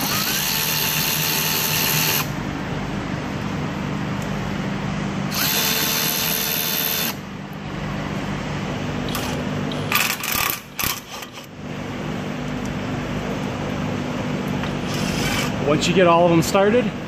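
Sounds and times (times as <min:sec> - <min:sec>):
cordless ratchet whirring: 0:00.0 - 0:02.3, 0:05.3 - 0:07.2, 0:14.8 - 0:15.5
steady low hum: 0:00.0 - 0:17.0.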